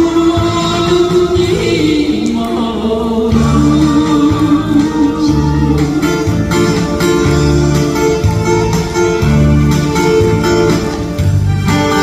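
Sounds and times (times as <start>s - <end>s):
guitar over backing track: 0.0s - 12.0s.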